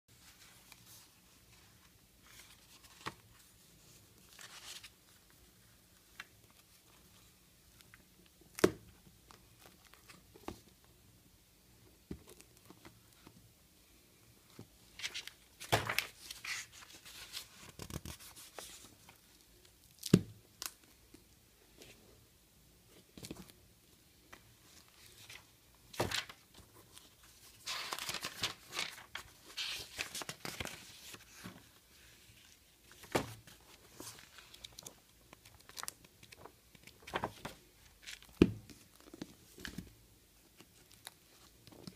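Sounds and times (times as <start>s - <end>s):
book pages rustling: 0.2s - 5.3s, 14.5s - 19.4s, 24.3s - 41.9s.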